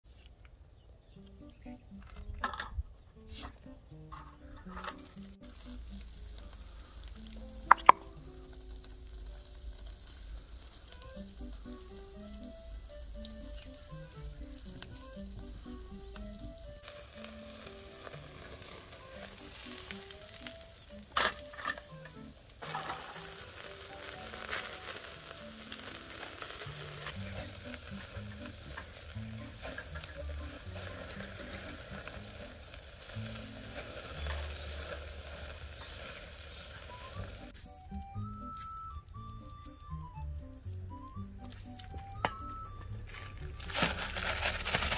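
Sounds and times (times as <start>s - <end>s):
meat sizzling on a grill: 4.6s - 38.1s.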